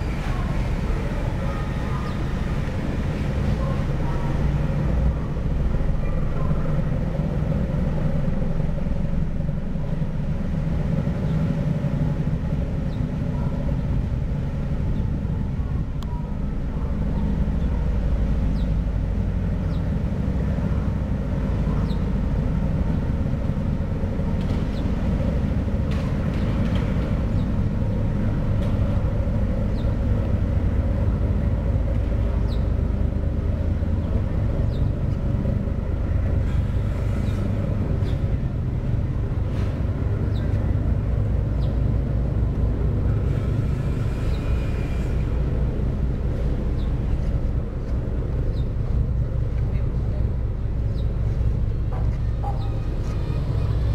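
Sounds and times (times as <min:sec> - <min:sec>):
ship diesel engines rumbling: 0:00.0 - 0:53.9.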